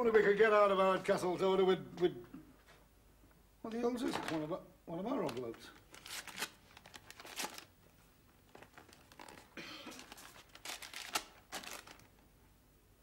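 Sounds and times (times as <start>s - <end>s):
envelope tearing: 5.2s - 7.7s, 8.5s - 12.2s
paper rustling and crinkling: 5.2s - 7.7s, 8.4s - 12.3s.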